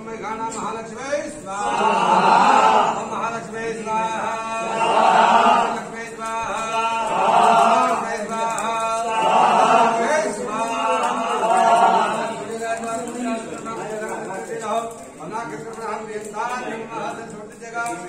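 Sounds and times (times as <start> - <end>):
men chanting through microphone: 1.4 - 14.2.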